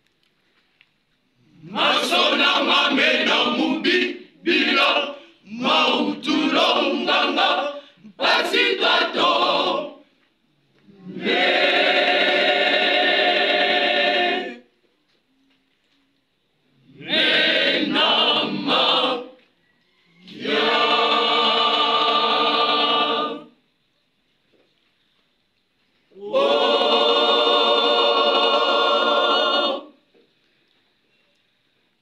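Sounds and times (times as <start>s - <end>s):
congregation singing a hymn: 1.5s - 10.2s, 10.9s - 14.7s, 16.9s - 19.5s, 20.2s - 23.6s, 26.1s - 30.1s.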